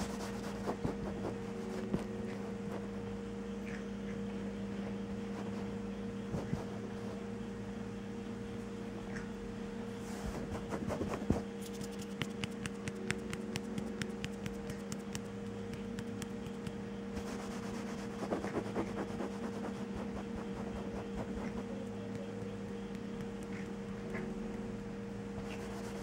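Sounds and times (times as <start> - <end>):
kitten claws scratching blanket: 0.0 - 2.8, 5.2 - 7.1, 10.2 - 26.0.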